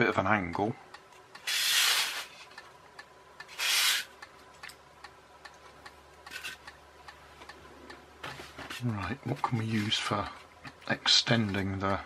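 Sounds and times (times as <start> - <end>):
styrofoam scraping across mat: 1.5 - 2.4.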